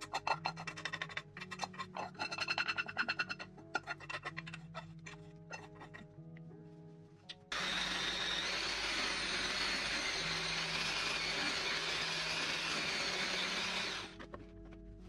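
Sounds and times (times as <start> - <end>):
stick blender whisking: 7.5 - 14.2.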